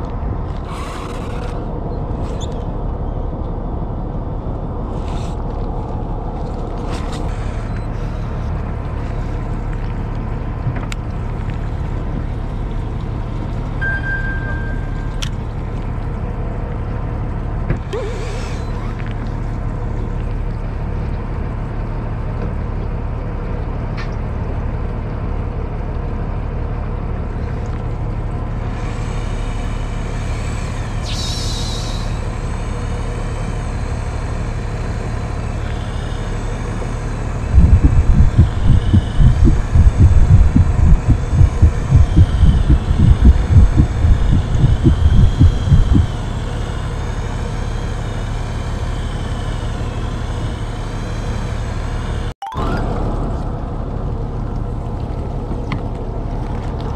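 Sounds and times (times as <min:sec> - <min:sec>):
boat engine humming: 0:00.0 - 0:56.9
low buffeting thumps: 0:37.4 - 0:46.2.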